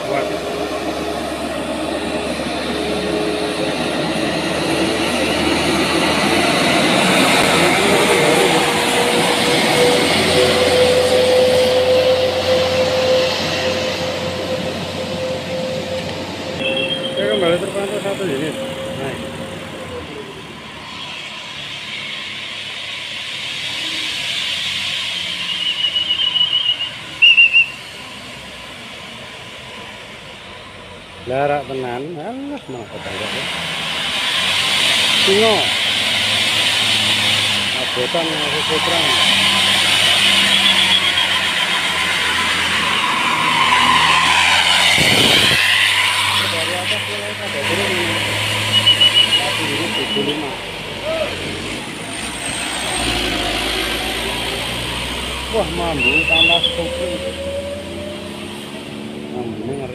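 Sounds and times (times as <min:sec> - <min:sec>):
diesel truck engine labouring uphill: 0:00.0 - 0:59.9
pea whistle blowing: 0:16.6 - 0:17.4, 0:25.1 - 0:28.0, 0:40.2 - 0:45.8, 0:48.6 - 0:50.5, 0:56.0 - 0:57.7.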